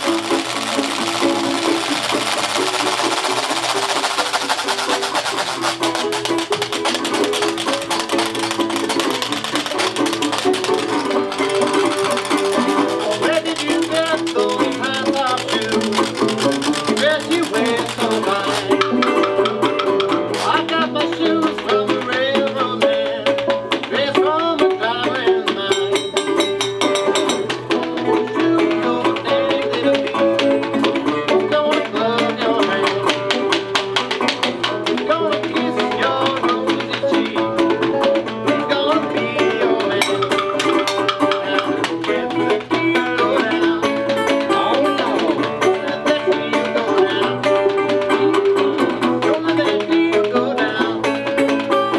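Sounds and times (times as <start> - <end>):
washboard scraped rhythmically: 0.0 - 25.7
banjo picking: 0.0 - 51.9
guitar picking: 0.0 - 51.9.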